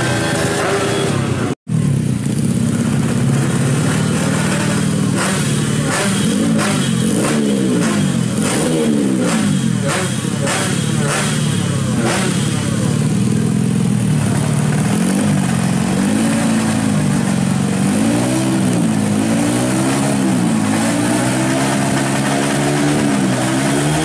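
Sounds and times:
motorcycle engine revving: 0.0 - 24.0
exhaust cracks: 9.2 - 24.0.

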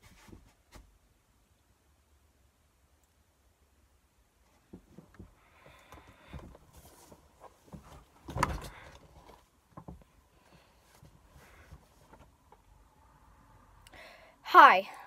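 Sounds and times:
person moving about thumps: 4.5 - 12.7.

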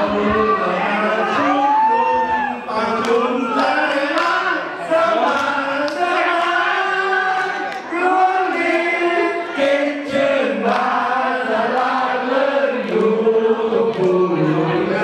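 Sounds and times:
crowd singing together: 0.0 - 15.0.

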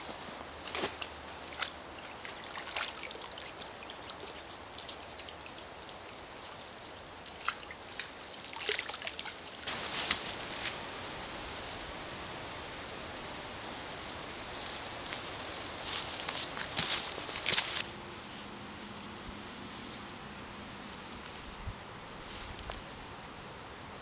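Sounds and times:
faint steady hiss: 0.0 - 24.0
hands splashing in stream water: 0.6 - 6.1, 7.2 - 10.3.

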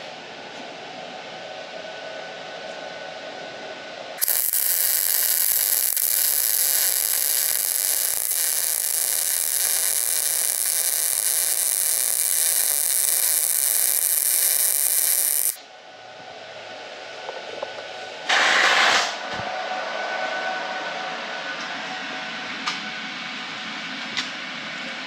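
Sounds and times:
arc welding crackling sizzle: 4.2 - 15.6.

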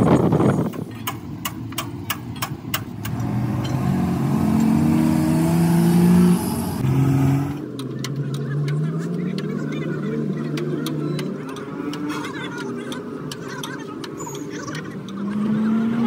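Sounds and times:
sharp metallic clicks: 0.7 - 3.9, 10.4 - 15.2
engine revving: 3.0 - 12.4, 15.0 - 16.0.

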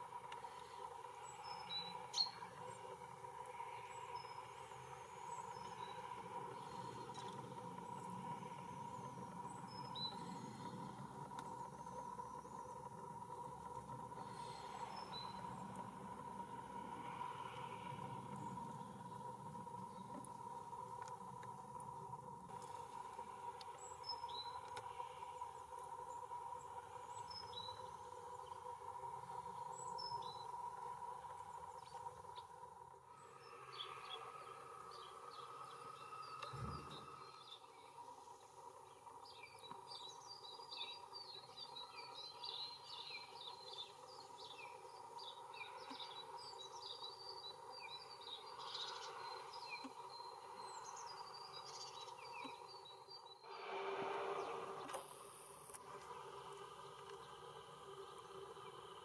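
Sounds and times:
bird twittering song: 0.1 - 21.4, 22.0 - 53.6
faint camera stabiliser whine: 0.1 - 38.8, 53.3 - 59.0
bird chirps: 1.2 - 2.9, 33.1 - 55.0.

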